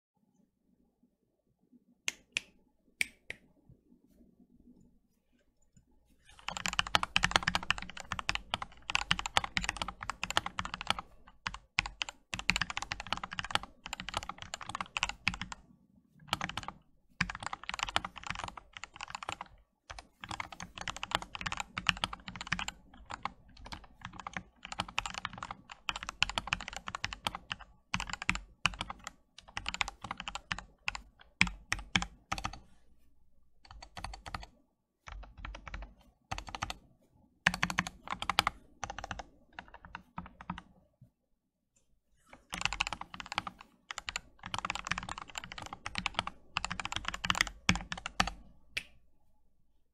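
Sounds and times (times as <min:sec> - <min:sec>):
mechanical keyboard typing: 0:06.3 - 0:15.6, 0:16.3 - 0:32.7, 0:33.6 - 0:34.5, 0:35.1 - 0:36.8, 0:37.4 - 0:40.7, 0:42.4 - 0:48.4.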